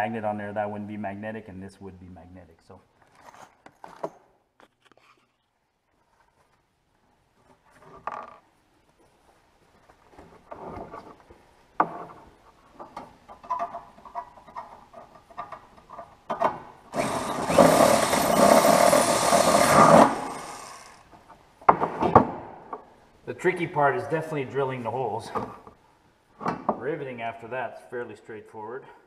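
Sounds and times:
power drill boring sheet metal: 0:16.9 - 0:21.1.

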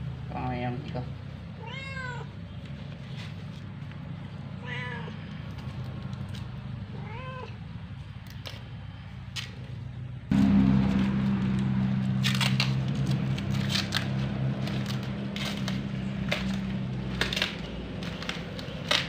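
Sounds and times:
steady low hum: 0:00.0 - 0:19.0
cat meowing: 0:01.6 - 0:02.4, 0:04.6 - 0:05.4, 0:06.9 - 0:07.7.

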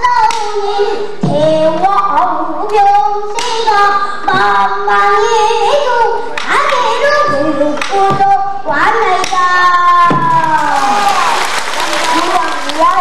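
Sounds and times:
girl singing with vibrato: 0:00.0 - 0:13.0.

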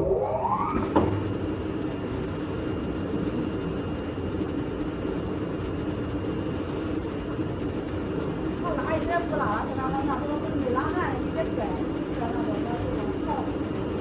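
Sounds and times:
cutting machine motor whine: 0:00.0 - 0:01.7
mechanical drone: 0:00.0 - 0:14.0.

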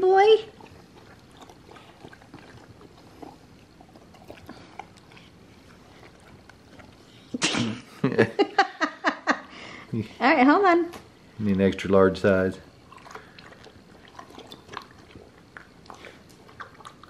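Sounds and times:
dog lapping water: 0:00.4 - 0:07.1, 0:12.8 - 0:17.0.

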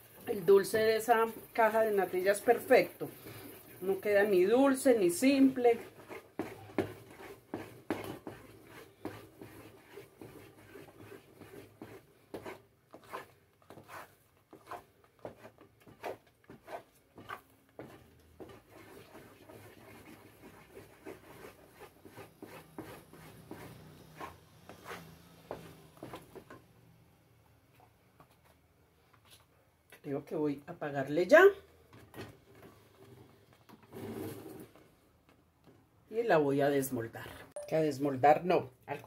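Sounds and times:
wooden spoon scraping pot: 0:00.0 - 0:26.6, 0:31.7 - 0:34.9.

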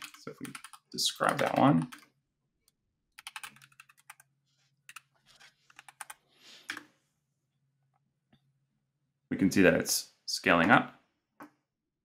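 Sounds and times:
computer keyboard typing: 0:00.0 - 0:02.1, 0:03.1 - 0:04.3, 0:04.9 - 0:05.1, 0:05.7 - 0:06.9.

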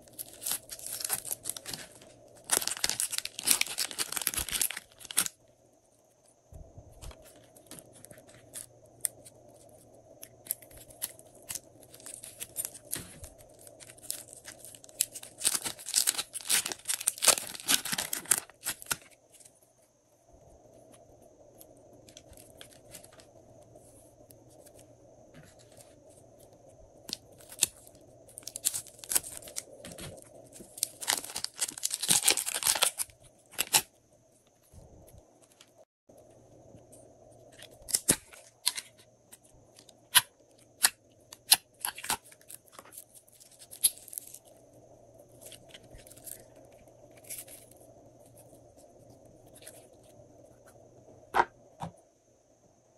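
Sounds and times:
slime squelching and crackling: 0:00.0 - 0:05.3, 0:10.6 - 0:19.1
plastic crinkling: 0:00.0 - 0:05.4, 0:10.4 - 0:19.5, 0:27.0 - 0:33.9
faint steady hum: 0:00.0 - 0:52.9.

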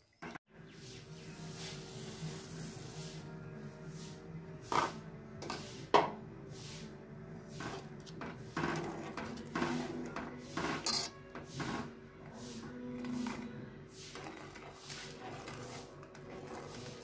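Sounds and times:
ladle scraping metal pot: 0:07.5 - 0:17.0.

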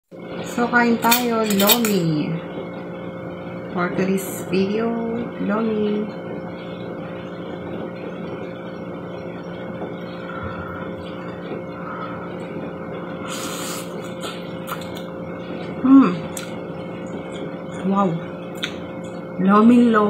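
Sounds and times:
low background hum: 0:00.1 - 0:20.0
slurping noodles: 0:13.2 - 0:14.9.

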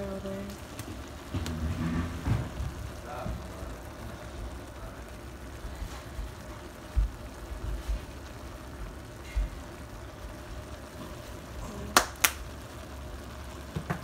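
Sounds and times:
meat sizzling in a frying pan: 0:00.0 - 0:14.0
low handling bumps: 0:00.8 - 0:03.5.

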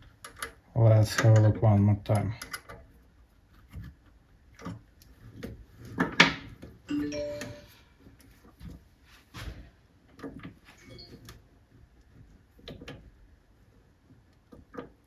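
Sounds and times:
metal clicks and knocks: 0:00.0 - 0:03.0, 0:14.3 - 0:15.0
brief ringing tone: 0:06.9 - 0:07.9.

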